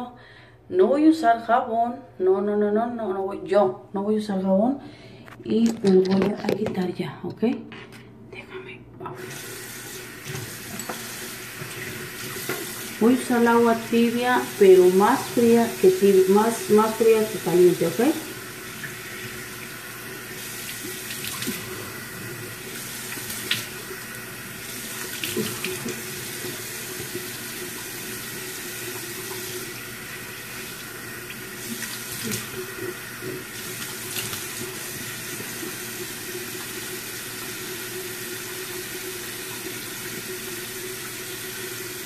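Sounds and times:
tap running into sink: 0:10.2 - 0:13.0.

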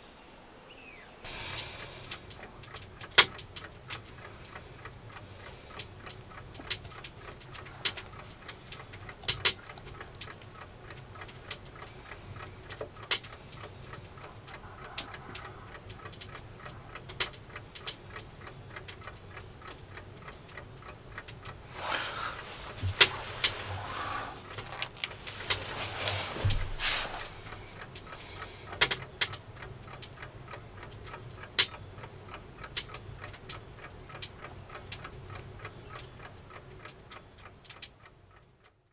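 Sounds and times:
faint ticking: 0:01.2 - 0:38.9
sharp clicks and crackles: 0:01.3 - 0:38.8
rustling movement: 0:21.2 - 0:28.7
low thuds: 0:21.7 - 0:27.8.

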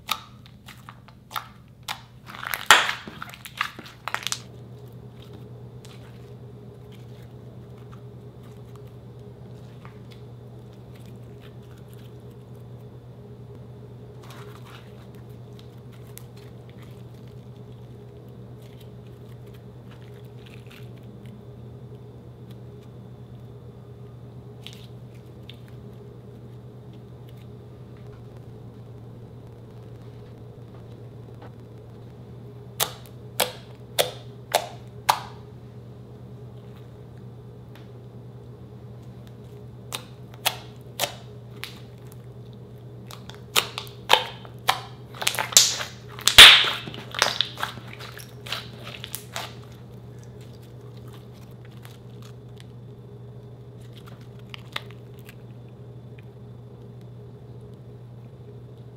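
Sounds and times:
slime popping: 0:00.0 - 0:04.5, 0:43.1 - 0:52.6
low steady hum: 0:00.0 - 0:58.9.

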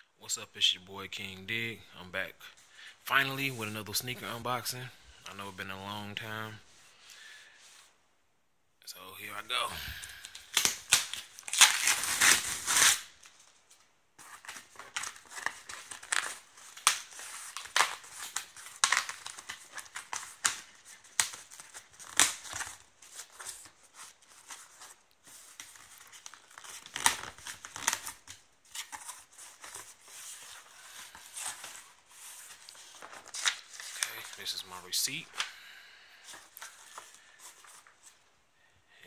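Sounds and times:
packing tape peeling: 0:10.3 - 0:13.3, 0:14.4 - 0:24.8.

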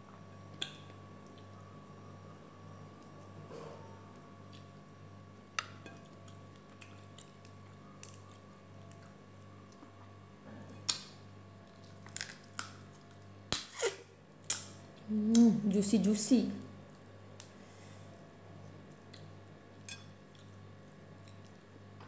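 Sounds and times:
low steady hum: 0:00.0 - 0:22.0
person chewing: 0:05.6 - 0:10.1.

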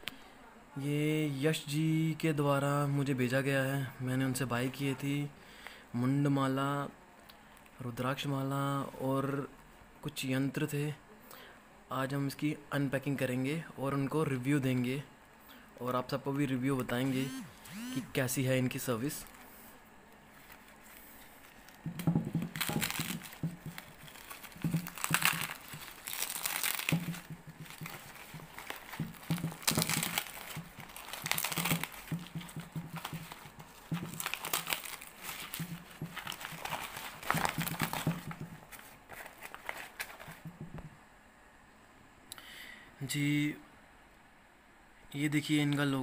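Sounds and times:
plastic bag crinkling: 0:19.0 - 0:40.6.

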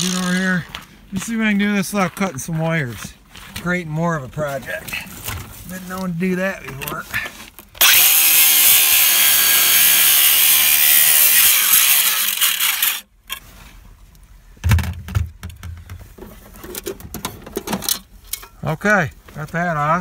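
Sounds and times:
angle grinder cutting screws: 0:07.8 - 0:13.1.

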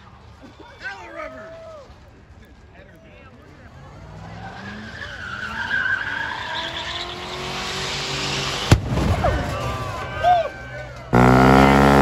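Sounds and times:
vehicle engine revving up: 0:03.7 - 0:08.7, 0:11.1 - 0:12.0.

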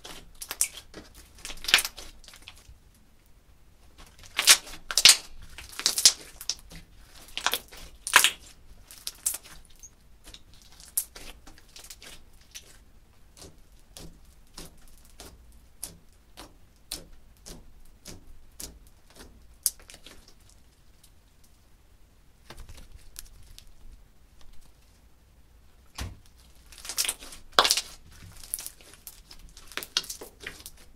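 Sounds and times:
slime crackling when stretched: 0:00.0 - 0:02.7, 0:04.0 - 0:20.7, 0:26.2 - 0:30.9
slime squelching and popping: 0:00.0 - 0:02.7, 0:03.9 - 0:20.7, 0:25.9 - 0:30.9.

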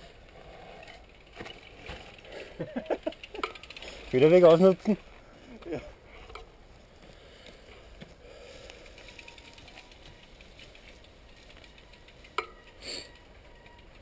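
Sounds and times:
bicycle freewheel ratchet ticking: 0:00.2 - 0:04.8, 0:08.2 - 0:14.0.

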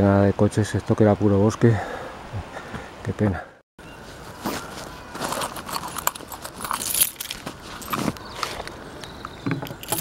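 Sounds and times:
fabric rustling and scuffing: 0:04.0 - 0:05.9.

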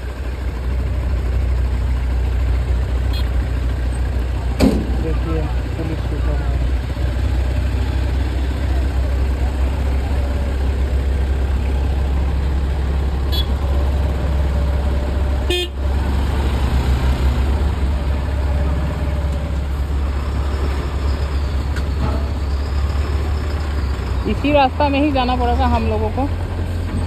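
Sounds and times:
motorcycle engine rumble: 0:00.0 - 0:27.0
vehicle horn honking: 0:03.1 - 0:03.4, 0:13.3 - 0:13.6, 0:15.5 - 0:15.8.

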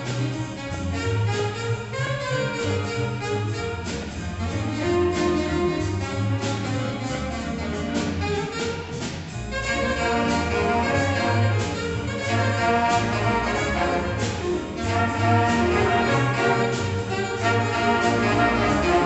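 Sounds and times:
guitar: 0:00.0 - 0:19.0
piano: 0:00.0 - 0:19.0
saxophones: 0:00.0 - 0:19.0
trombones: 0:00.0 - 0:19.0
trumpets: 0:00.0 - 0:19.0
upright bass: 0:00.0 - 0:19.0.

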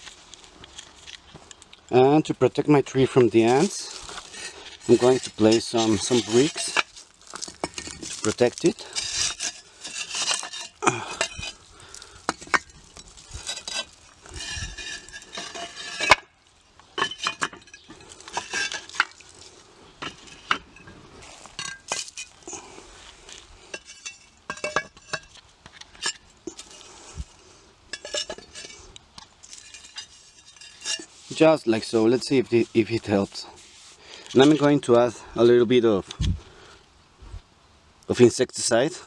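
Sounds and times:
bricks clinking and scraping: 0:03.1 - 0:19.4, 0:20.0 - 0:22.6, 0:23.7 - 0:26.9, 0:27.9 - 0:31.2.

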